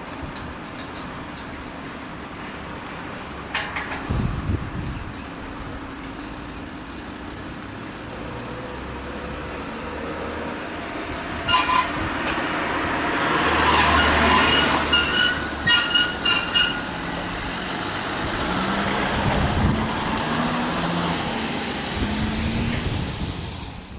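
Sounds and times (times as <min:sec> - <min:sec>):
short horn blasts: 0:11.4 - 0:12.0, 0:13.6 - 0:16.9.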